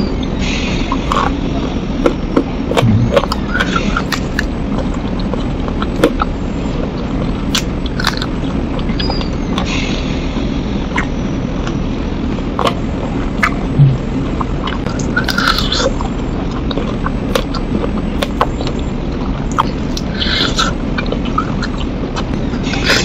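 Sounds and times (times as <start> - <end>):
background rumble and hiss: 0.0 - 23.0
person chewing: 2.0 - 6.3, 7.2 - 9.7, 13.4 - 23.0.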